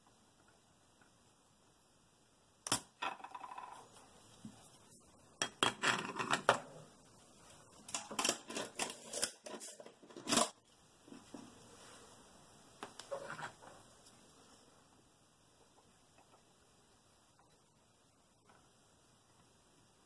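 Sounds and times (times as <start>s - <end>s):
tools clicking and knocking on desk: 5.4s - 6.7s.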